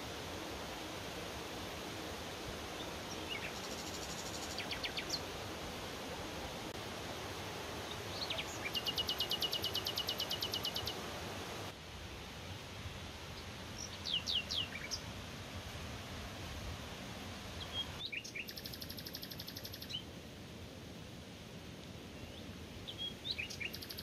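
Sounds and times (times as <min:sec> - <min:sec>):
mountain stream rushing: 0:00.0 - 0:18.5
songbirds singing: 0:02.6 - 0:05.4, 0:07.8 - 0:11.6, 0:13.4 - 0:15.1, 0:17.6 - 0:20.1, 0:22.1 - 0:24.0.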